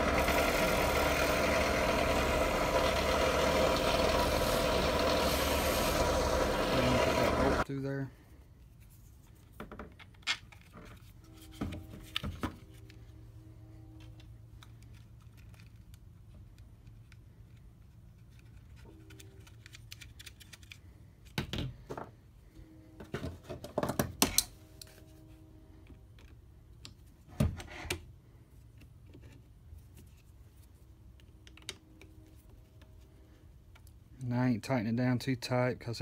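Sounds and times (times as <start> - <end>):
screwdriver working a bolt: 0.0 - 7.6
plastic parts clicking and clattering: 14.1 - 22.0.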